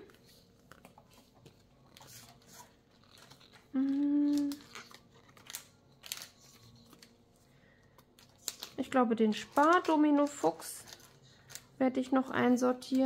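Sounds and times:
paper rustling: 0:00.0 - 0:07.2
woman humming: 0:03.7 - 0:04.8.

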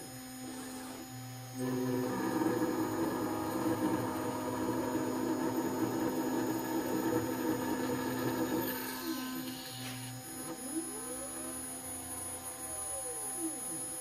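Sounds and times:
end mill cutting plastic: 0:00.0 - 0:10.7
router spindle whining: 0:00.0 - 0:14.0.

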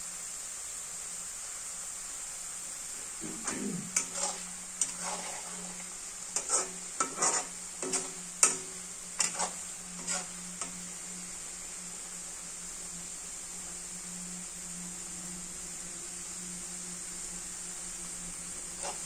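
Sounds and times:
potato sizzling in oil: 0:00.0 - 0:19.0
metal skimmer scraping a wok: 0:03.4 - 0:11.3, 0:18.8 - 0:19.0.

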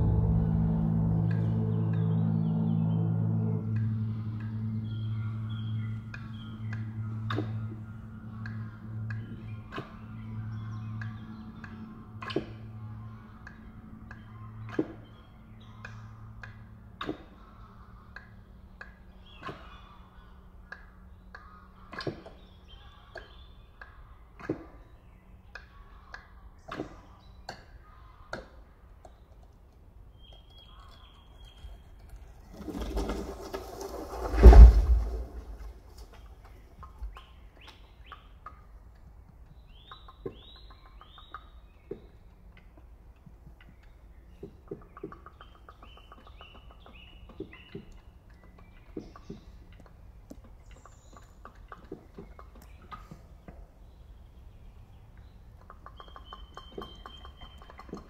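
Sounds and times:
loud low boom: 0:00.0 - 0:06.4, 0:34.2 - 0:35.8
birds chirping: 0:00.0 - 0:58.0
rushing noise: 0:33.8 - 0:35.7.

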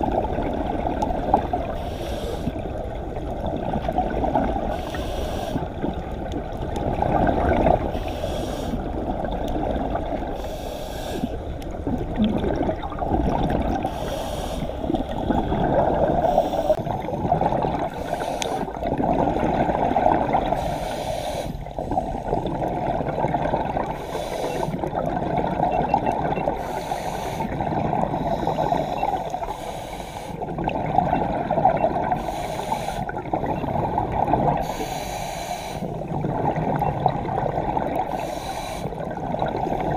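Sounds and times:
scuba regulator breathing underwater: 0:01.6 - 0:02.8, 0:04.5 - 0:05.9, 0:07.8 - 0:09.0, 0:10.2 - 0:11.6, 0:13.6 - 0:24.9, 0:26.4 - 0:36.7, 0:37.8 - 0:39.9.

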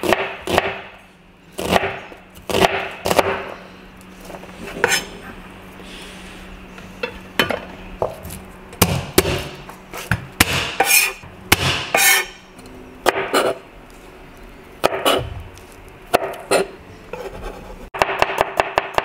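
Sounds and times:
blade scraping across board: 0:04.6 - 0:05.2, 0:11.9 - 0:12.4.

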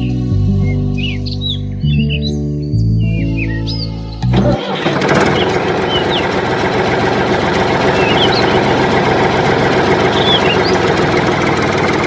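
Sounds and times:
faint bird chirps: 0:00.0 - 0:04.3, 0:08.0 - 0:08.6, 0:10.1 - 0:10.8
small motor running: 0:04.3 - 0:12.0.

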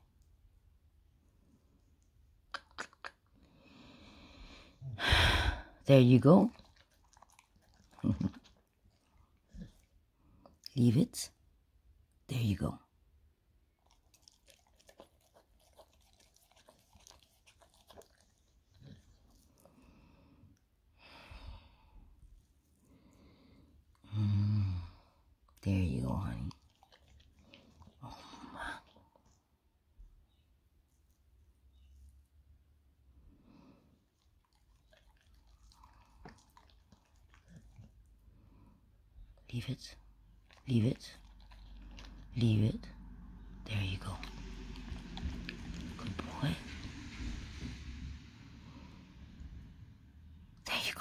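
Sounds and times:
mouth clicks and smacks: 0:02.4 - 0:03.4
dog chewing meat: 0:06.4 - 0:09.9, 0:13.8 - 0:19.8, 0:26.4 - 0:29.2, 0:34.1 - 0:38.2, 0:40.3 - 0:43.4, 0:44.1 - 0:47.0.

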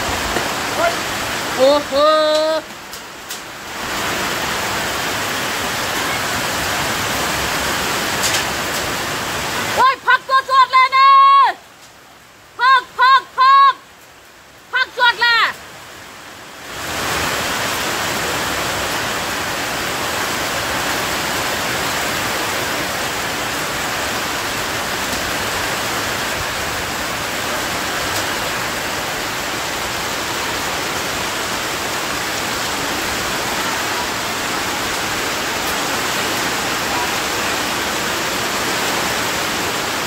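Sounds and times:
heavy rain pouring: 0:00.0 - 0:40.0.

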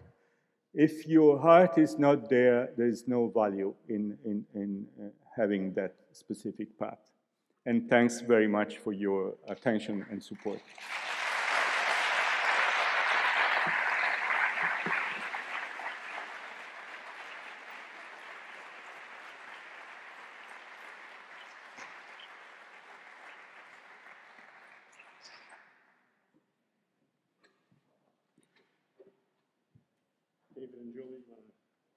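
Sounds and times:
audience clapping: 0:09.5 - 0:25.8.

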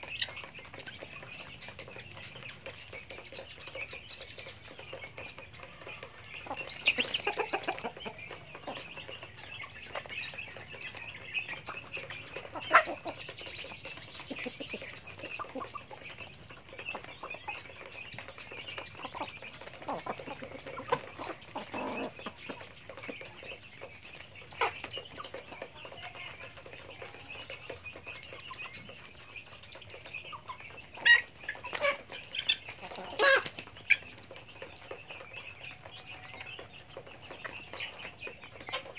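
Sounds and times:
chickens clucking softly: 0:00.0 - 0:38.9
chicken calls and wing flaps: 0:30.9 - 0:38.9.

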